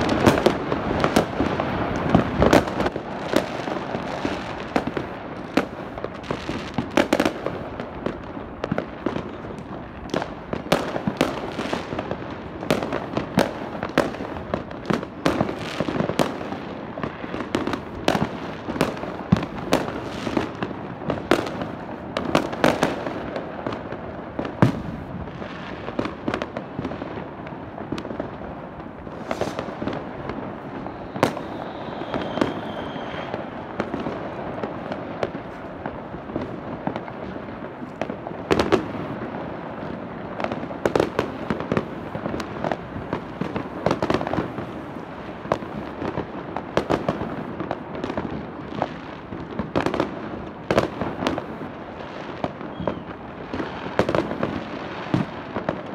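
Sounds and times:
distant fireworks din: 0.0 - 55.9
fireworks bangs and crackles: 0.0 - 55.9
firework whistle: 29.1 - 35.6, 52.6 - 54.0.

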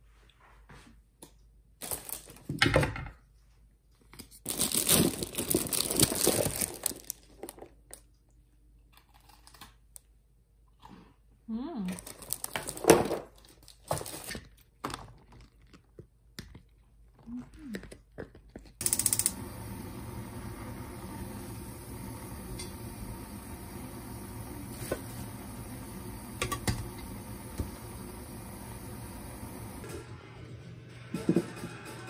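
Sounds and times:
plastic wrapping rustling: 1.8 - 2.5, 4.3 - 7.8, 12.0 - 15.7
pot cooking on gas burner: 18.8 - 32.0.

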